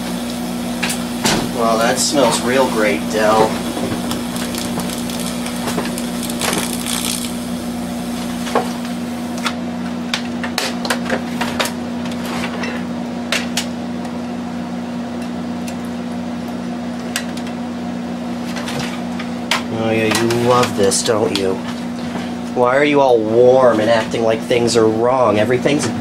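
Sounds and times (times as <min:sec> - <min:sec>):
electrical hum: 0:00.0 - 0:26.0
power supply crackling and popping: 0:00.1 - 0:10.2.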